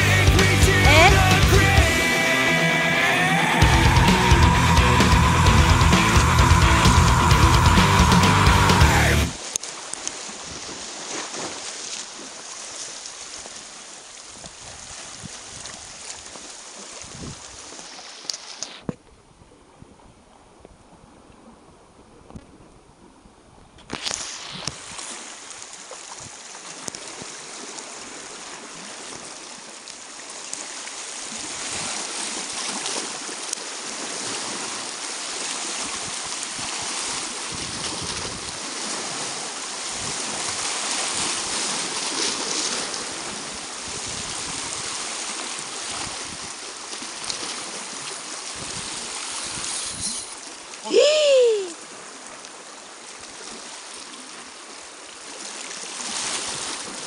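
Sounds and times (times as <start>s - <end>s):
short loud cry: 2.2s - 9.4s, 50.8s - 51.8s
waves splashing on rocky shore: 24.0s - 52.4s, 55.3s - 57.0s.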